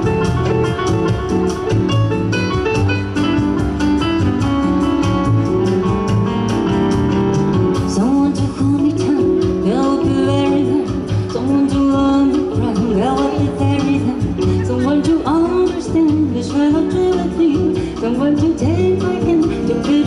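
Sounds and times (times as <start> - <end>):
guitar: 0.0 - 20.0
live jazz band playing: 0.0 - 20.0
person singing: 7.8 - 20.0.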